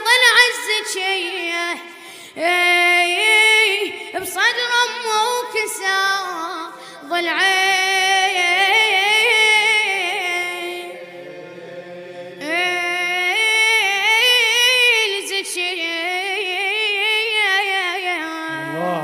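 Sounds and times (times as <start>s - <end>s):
boy chanting a cappella: 0.0s - 1.8s, 17.8s - 19.0s.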